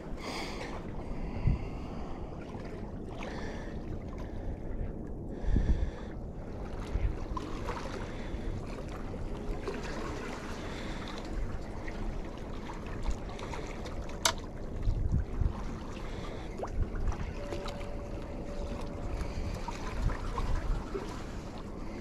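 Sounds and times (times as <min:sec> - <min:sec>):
wind buffeting microphone: 0:00.0 - 0:13.9, 0:14.5 - 0:22.0.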